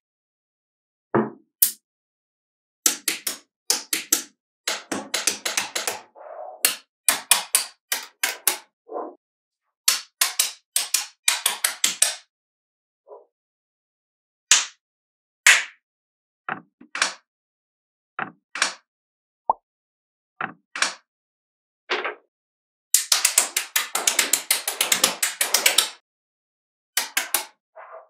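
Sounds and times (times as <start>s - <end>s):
magnetic balls clicking together: 2.9s - 6.0s, 9.9s - 12.2s, 23.0s - 26.0s, 27.0s - 27.5s.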